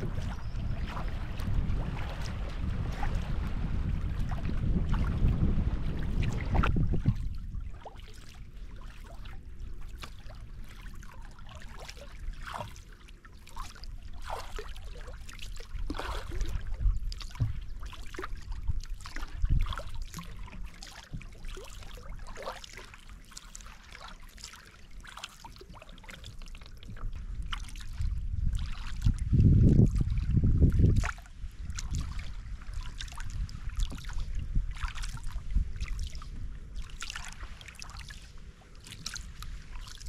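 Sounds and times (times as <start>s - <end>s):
wind buffeting microphone: 0.0s - 9.8s, 14.5s - 22.1s, 26.9s - 40.0s
paddle drips and splashes: 0.0s - 40.0s
ripples lapping at hull: 0.0s - 40.0s.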